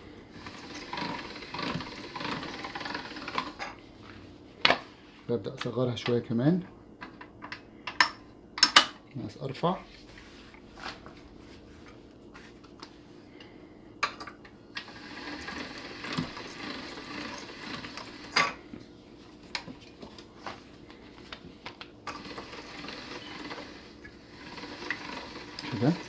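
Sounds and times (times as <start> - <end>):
pasta machine rollers whirring: 0.0 - 4.3, 14.7 - 21.4, 22.0 - 26.0.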